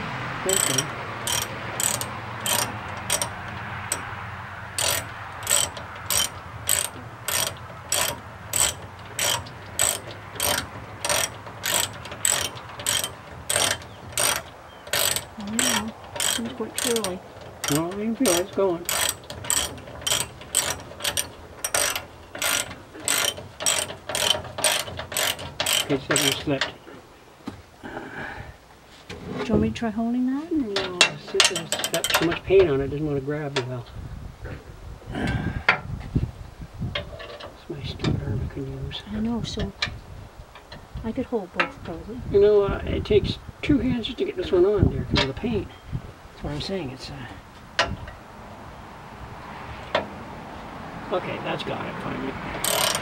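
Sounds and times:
ratchet clicking: 0:00.4 - 0:26.7, 0:30.8 - 0:32.4, 0:52.6 - 0:53.0.

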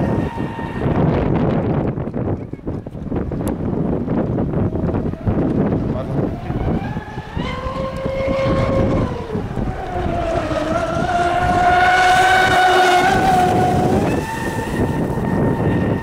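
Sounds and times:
rc boat motor whining: 0:00.0 - 0:02.8, 0:03.6 - 0:16.0.

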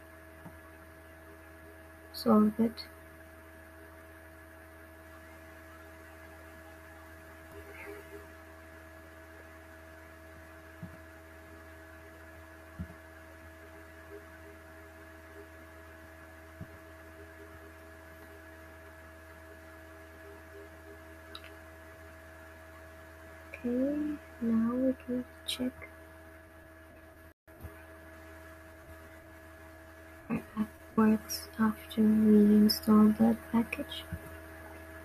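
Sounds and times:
low electrical hum: 0:00.0 - 0:35.0
faint clicks: 0:21.3 - 0:21.6.

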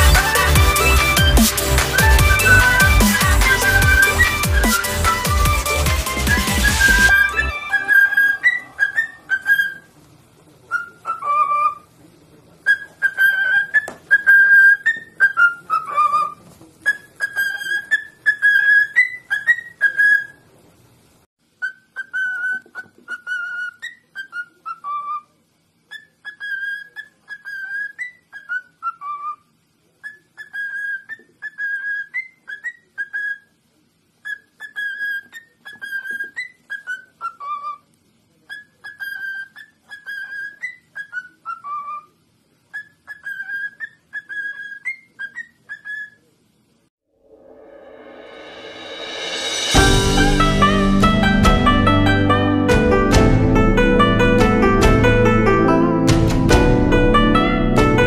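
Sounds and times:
cockatiel whistling a tune: 0:00.0 - 0:09.9, 0:12.7 - 0:20.4, 0:21.6 - 0:25.2, 0:25.9 - 0:29.4, 0:30.0 - 0:33.5, 0:34.2 - 0:37.8, 0:38.5 - 0:42.1, 0:42.7 - 0:46.2.

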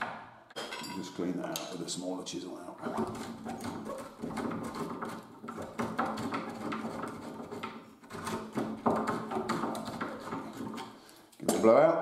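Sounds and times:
wood chisel scraping: 0:02.8 - 0:11.2.

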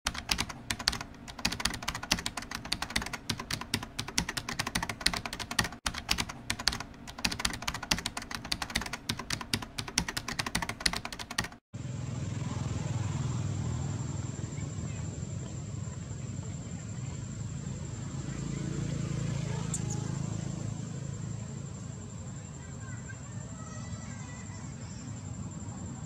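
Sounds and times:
computer keyboard typing: 0:00.0 - 0:11.6.

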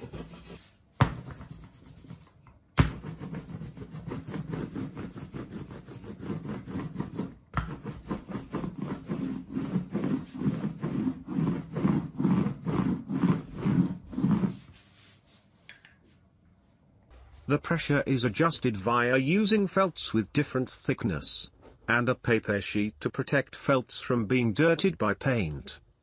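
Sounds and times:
rhythmic rubbing strokes by hand: 0:00.0 - 0:00.6, 0:01.2 - 0:15.4.

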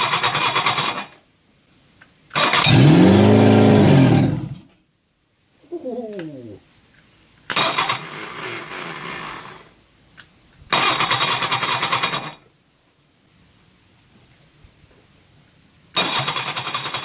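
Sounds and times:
engine cranked by starter motor: 0:00.0 - 0:01.2, 0:02.3 - 0:04.7, 0:07.5 - 0:09.7, 0:10.7 - 0:12.5, 0:15.9 - 0:17.0
engine winding down whine: 0:02.5 - 0:04.7.

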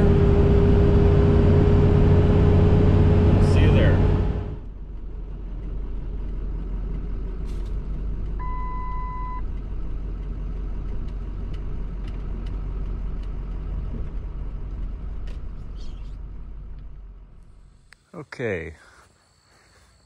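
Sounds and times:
road and engine rumble: 0:00.0 - 0:20.0
electronic beep: 0:08.4 - 0:09.4.

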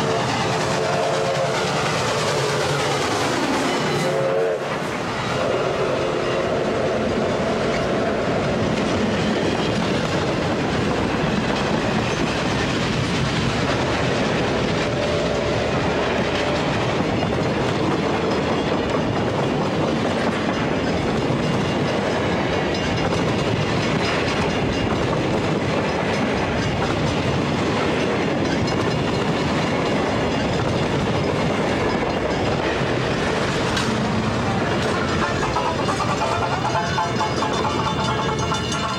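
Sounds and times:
train passing at speed: 0:00.0 - 0:38.9
wheels clicking over rail joints: 0:16.1 - 0:38.9.

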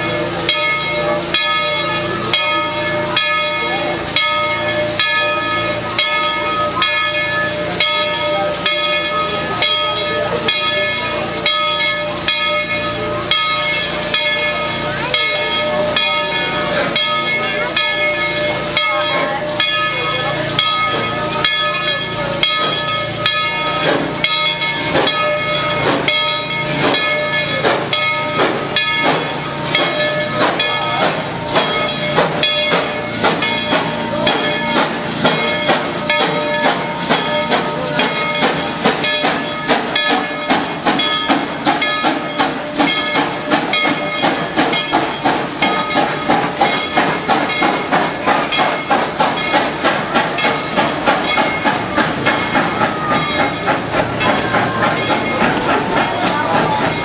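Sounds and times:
steam hissing: 0:00.0 - 0:57.0
steam locomotive exhaust chuffs: 0:00.0 - 0:57.0.

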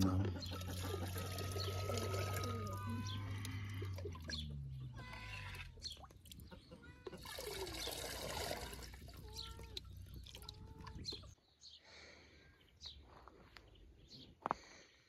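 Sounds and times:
liquid pouring and splashing: 0:00.6 - 0:04.5, 0:07.1 - 0:11.4.

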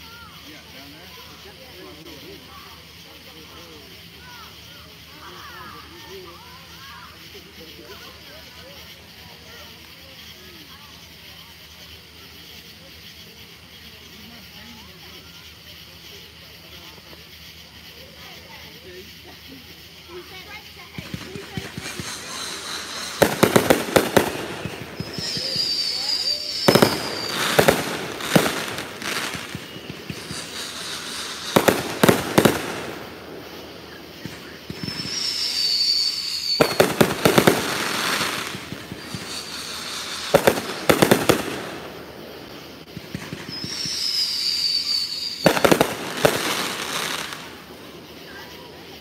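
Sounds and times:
fireworks bangs and crackling: 0:00.1 - 0:49.0
falling firework whistle: 0:20.1 - 0:47.7.

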